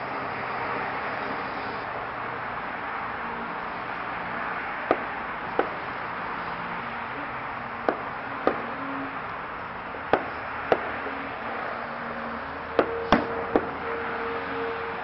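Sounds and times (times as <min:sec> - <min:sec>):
sharp knocks: 0:04.9 - 0:05.8, 0:12.8 - 0:13.8
faint steady tone: 0:06.4 - 0:15.0.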